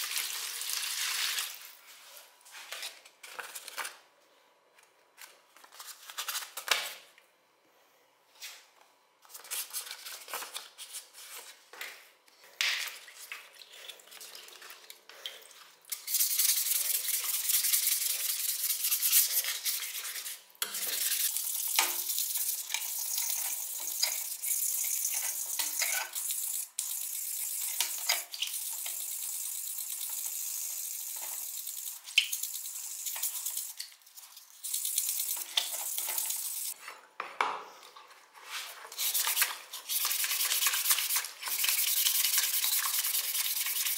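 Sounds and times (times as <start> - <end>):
wet sanding scrubbing: 38.5 - 43.9.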